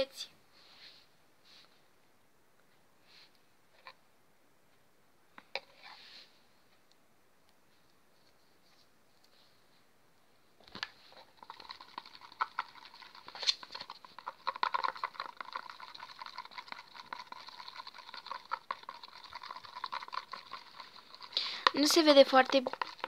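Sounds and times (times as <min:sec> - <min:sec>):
stick stirring glue in bowl: 0:11.1 - 0:23.0.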